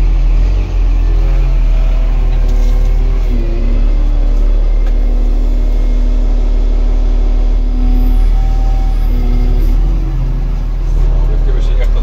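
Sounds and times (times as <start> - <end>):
forklift engine drone with whine: 0.0 - 12.0.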